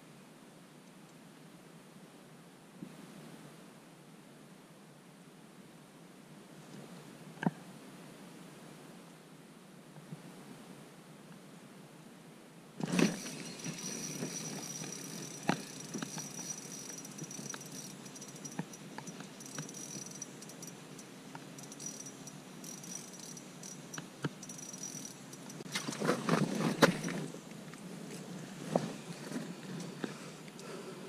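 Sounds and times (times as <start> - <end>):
fishing reel whining: 12.8 - 25.7.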